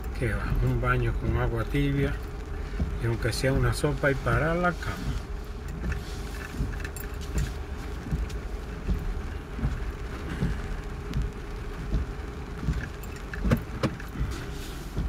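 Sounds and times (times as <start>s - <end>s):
engine and road noise: 0.0s - 15.0s
rain on car: 0.0s - 15.0s
soft thumps: 4.9s - 15.0s.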